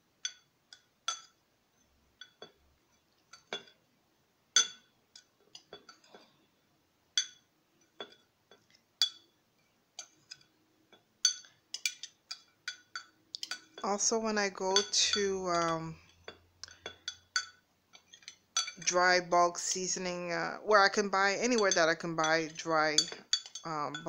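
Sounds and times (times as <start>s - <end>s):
spoon clinking in glass jar: 11.2s - 13.8s, 14.7s - 18.9s, 21.2s - 24.0s.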